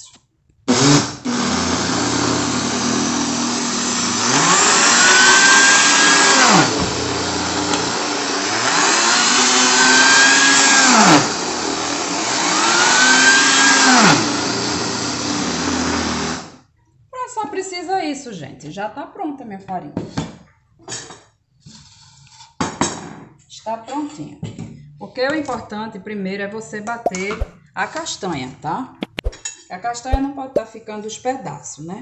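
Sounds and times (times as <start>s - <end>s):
electric blender grinding: 0.7s - 16.6s.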